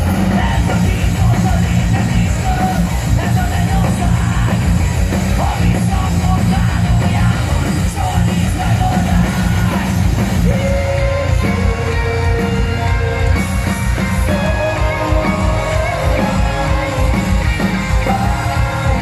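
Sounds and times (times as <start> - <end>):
heavy rock band playing live: 0.0 - 19.0.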